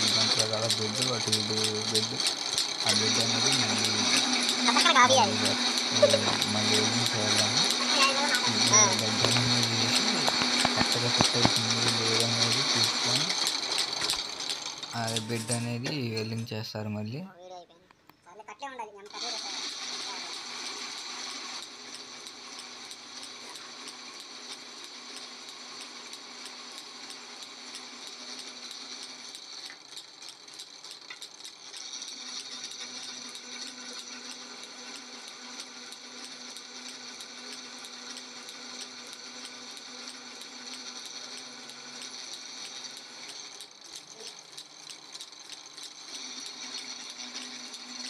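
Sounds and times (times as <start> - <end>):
metal chips rattling: 0.0 - 16.2
pillar drill boring steel: 0.0 - 16.9, 19.1 - 48.0.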